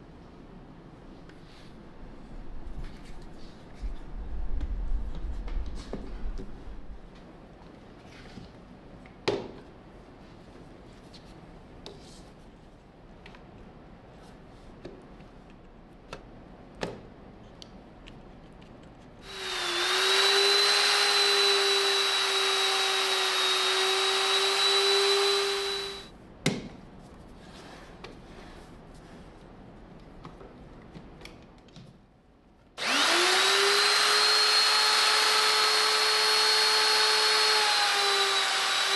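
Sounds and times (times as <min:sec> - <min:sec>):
router whining: 0:19.2 - 0:26.1, 0:32.8 - 0:38.9.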